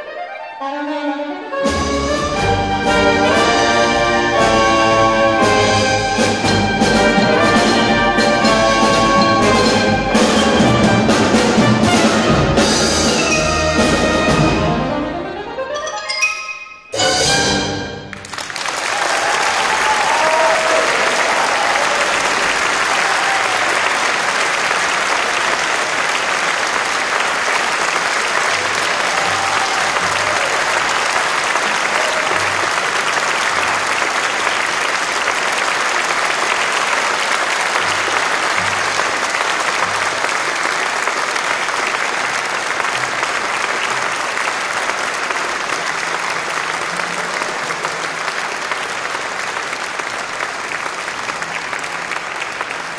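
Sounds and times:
large audience applauding: 17.9 - 52.9.

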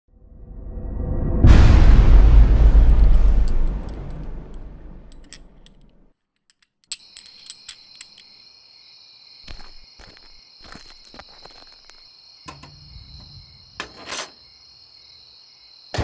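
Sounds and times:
deep cinematic boom: 0.2 - 5.6
light clinks and knocks: 3.1 - 8.4
crickets trilling: 6.9 - 16.0.

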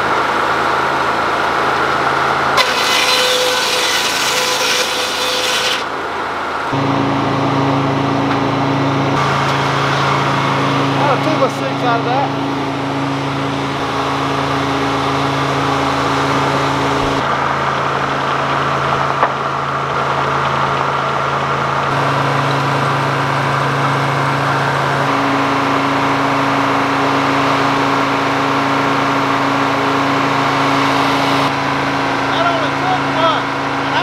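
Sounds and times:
diesel engine running: 0.0 - 34.0
circular saw: 2.2 - 7.0.

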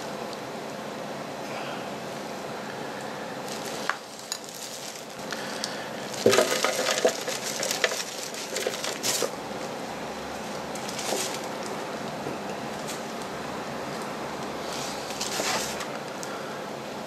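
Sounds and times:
soil rustling: 3.5 - 9.4.

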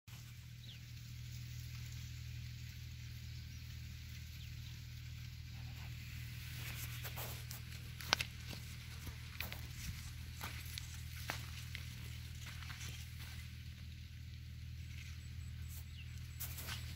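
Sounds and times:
steady low hum: 0.1 - 16.9
footsteps in dry leaves: 5.3 - 16.9.

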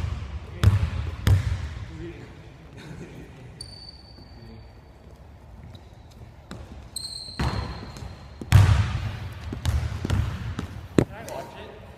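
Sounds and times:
basketball bouncing on wooden floor: 0.0 - 1.8, 6.5 - 6.8, 7.4 - 10.8
sneaker squeak: 3.6 - 8.6.

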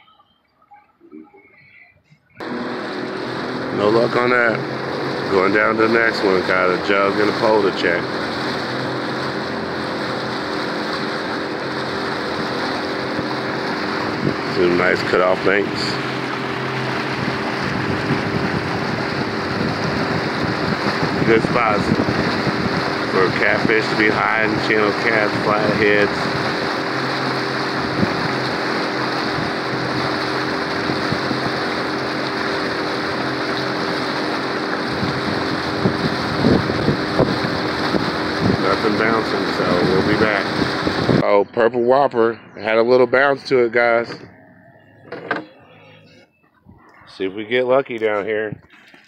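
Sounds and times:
outboard motor humming: 0.0 - 49.0
water noise: 0.0 - 49.0
wind noise: 12.4 - 26.8, 27.7 - 31.8, 34.8 - 41.4, 46.6 - 49.0.

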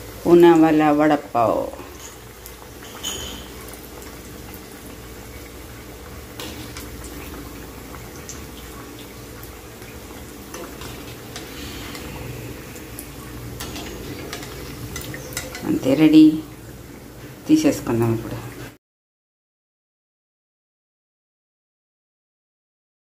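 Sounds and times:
food deep-frying in hot oil: 0.0 - 18.8
oil crackling: 1.7 - 17.4.

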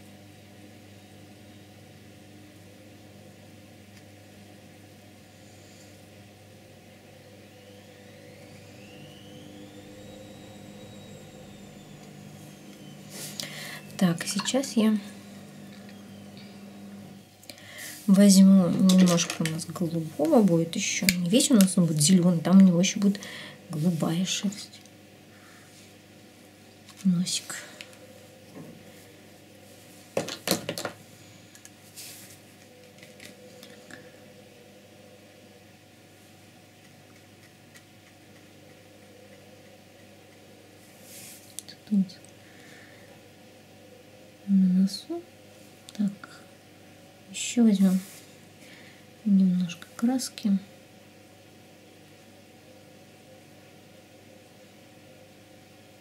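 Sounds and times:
faint steady hum: 0.0 - 56.0
high whine rising in pitch: 5.0 - 30.1.

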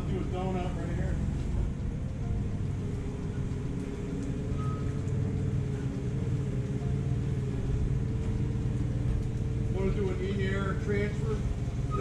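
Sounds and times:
forklift engine running: 0.0 - 12.0.

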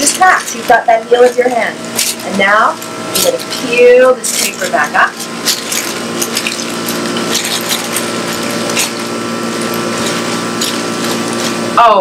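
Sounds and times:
steady machine hum: 0.0 - 12.0
paper crinkling and rustling: 4.4 - 11.7.

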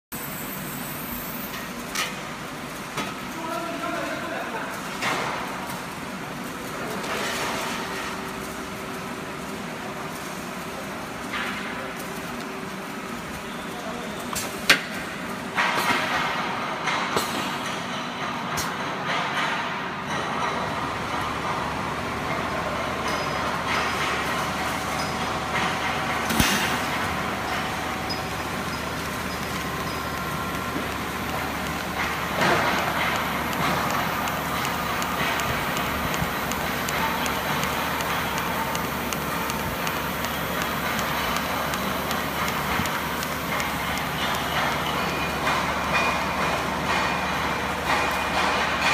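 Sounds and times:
factory machinery noise: 0.1 - 48.9
welding arc noise: 0.2 - 16.6, 20.6 - 48.9.

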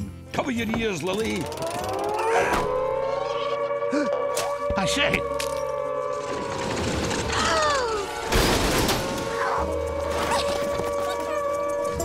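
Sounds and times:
background music: 0.0 - 12.0
cartoon warning siren droning: 1.1 - 12.0
loud crash: 8.2 - 9.3.

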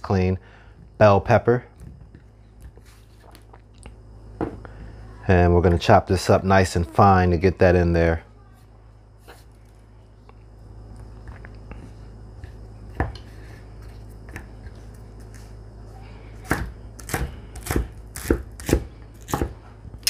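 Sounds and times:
knife chopping on wooden board: 16.4 - 19.6.

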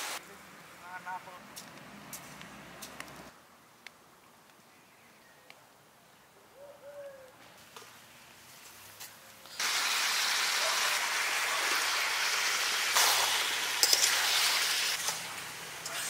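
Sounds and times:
faint bird call: 6.4 - 7.4
meat sizzling in a wok: 9.5 - 16.0.

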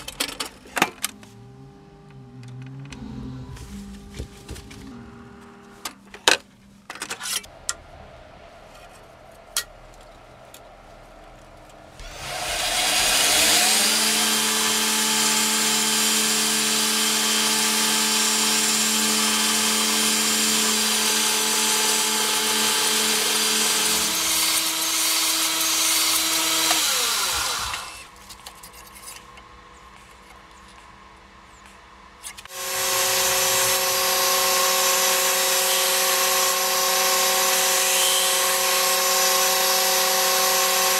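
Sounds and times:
belt grinder hissing: 12.0 - 28.1, 32.5 - 40.9.

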